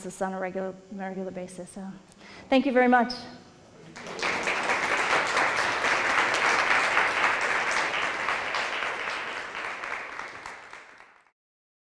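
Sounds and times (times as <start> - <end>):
audience applauding: 3.9 - 11.3.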